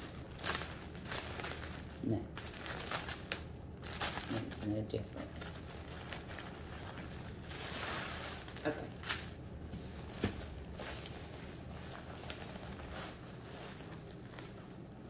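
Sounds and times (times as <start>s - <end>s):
plastic wrapping crinkling: 0.0s - 15.0s
tissue paper rustling: 5.6s - 15.0s.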